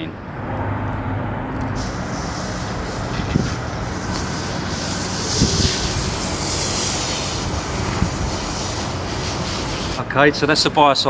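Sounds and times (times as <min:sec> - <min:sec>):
spray hissing from hose lance: 0:01.8 - 0:10.0.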